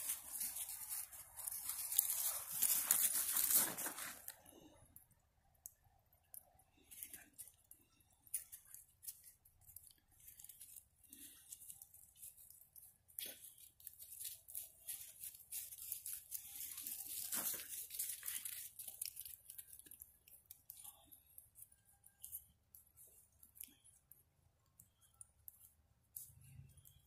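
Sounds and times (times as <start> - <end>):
footsteps crunching dry leaves: 0.0 - 4.3.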